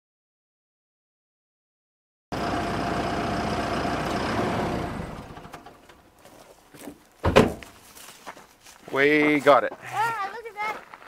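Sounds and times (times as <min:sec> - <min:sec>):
vehicle engine humming: 0:02.3 - 0:06.6
sharp thump: 0:07.2 - 0:07.7.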